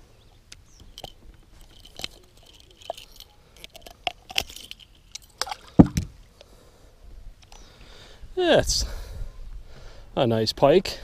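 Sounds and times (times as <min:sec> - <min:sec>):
pliers and hooks rattling: 0:00.8 - 0:06.0.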